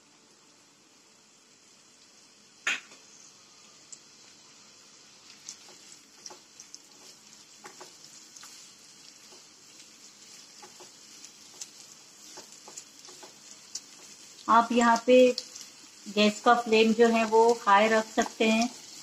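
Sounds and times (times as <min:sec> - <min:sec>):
onions sizzling in oil: 0:00.0 - 0:19.0
spatula scraping pan: 0:05.3 - 0:14.4.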